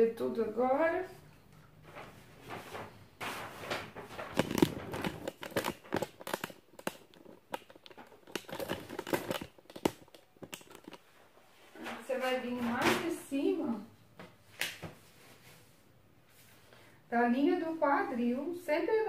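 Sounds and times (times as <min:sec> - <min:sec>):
camera tripod handling rustling: 0:04.3 - 0:11.0.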